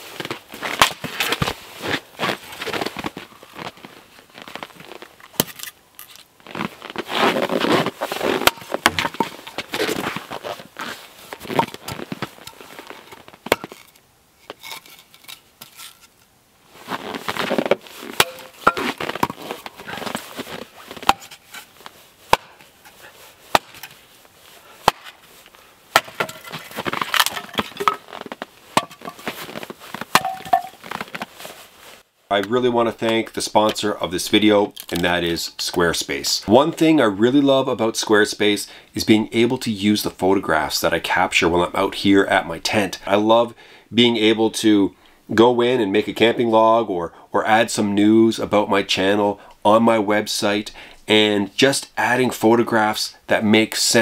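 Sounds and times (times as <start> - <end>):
hatchet chopping wood: 18.2 - 18.8, 22.3 - 22.6, 23.5 - 24.0, 24.8 - 25.2, 25.9 - 26.4.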